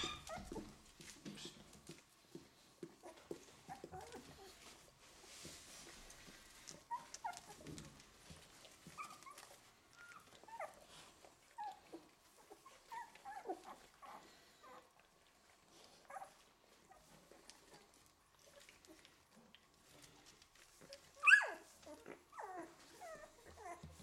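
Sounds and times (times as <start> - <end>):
puppies squeaking and whimpering: 0.0 - 1.8, 8.8 - 14.9, 20.9 - 24.0.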